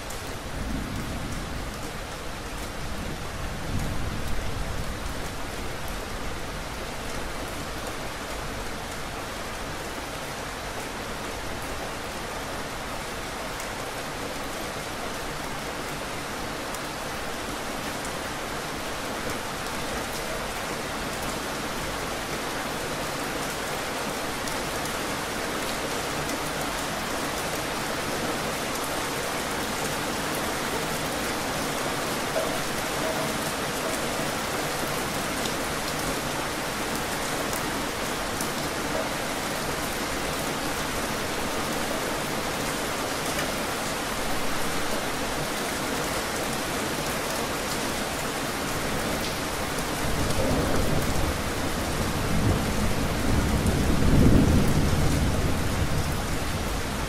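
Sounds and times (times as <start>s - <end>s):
steady rain falling: 0.0s - 57.0s
low rumble of thunder: 0.4s - 2.0s, 2.7s - 5.4s, 50.1s - 57.0s.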